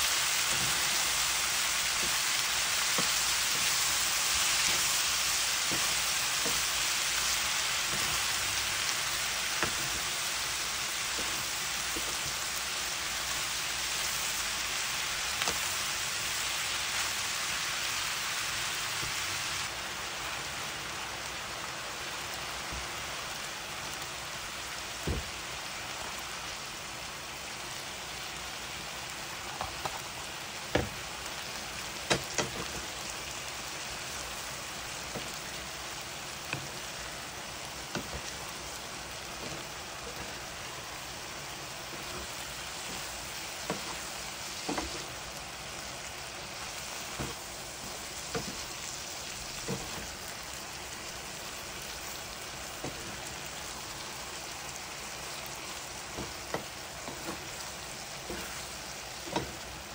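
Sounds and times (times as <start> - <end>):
food sizzling in a frying pan: 0.0 - 59.9
spatula tapping a pan: 1.9 - 6.9, 9.5 - 10.1, 30.7 - 31.0, 32.0 - 32.8, 37.9 - 38.3, 44.6 - 45.0, 48.3 - 48.7, 56.1 - 57.5, 59.3 - 59.6.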